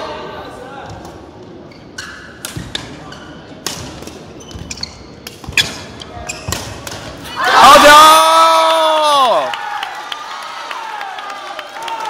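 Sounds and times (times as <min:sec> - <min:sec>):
shoes squeaking on court floor: 0:01.5 - 0:07.2
rackets hitting shuttlecock: 0:05.2 - 0:07.2.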